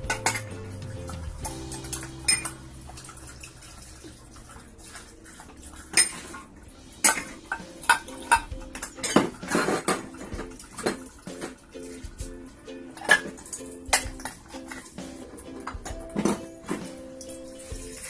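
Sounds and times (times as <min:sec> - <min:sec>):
dishes clinking against sink: 0:00.0 - 0:12.2, 0:13.0 - 0:18.0
water splashing: 0:00.0 - 0:12.3.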